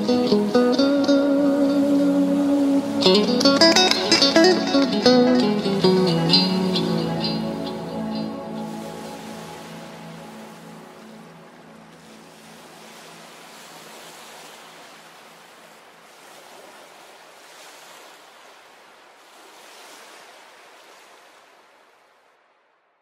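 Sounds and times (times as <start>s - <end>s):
music: 0.0s - 12.0s
ocean surf on beach: 0.0s - 22.7s.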